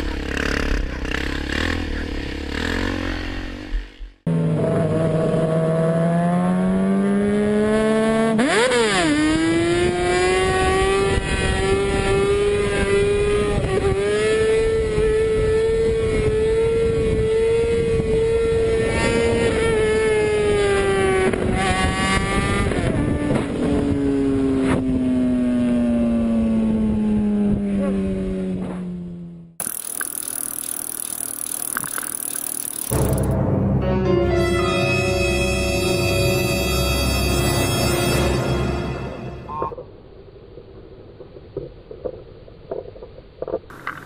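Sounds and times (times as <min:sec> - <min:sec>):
motorcycle engine revving: 0:00.0 - 0:33.4.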